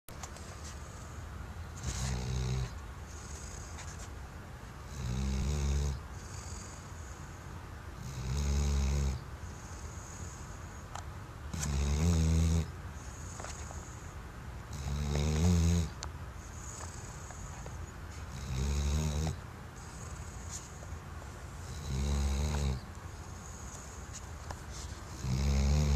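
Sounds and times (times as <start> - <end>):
dog snoring: 1.8 - 4.0, 4.8 - 7.4, 8.0 - 10.8, 11.5 - 14.1, 14.7 - 20.9, 21.6 - 24.2, 24.8 - 25.9.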